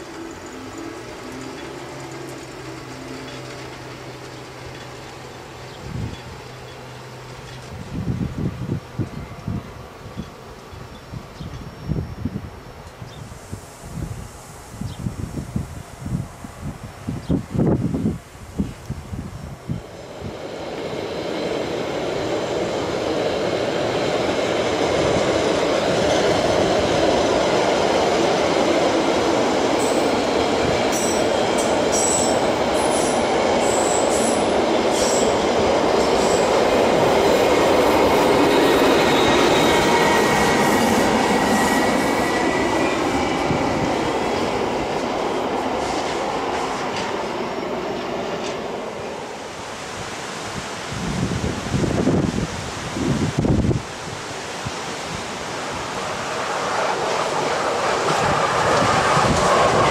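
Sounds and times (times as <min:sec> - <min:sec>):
train wagons rumbling over rails: 0:00.0 - 0:12.1, 0:19.1 - 0:49.6, 0:55.2 - 0:59.9.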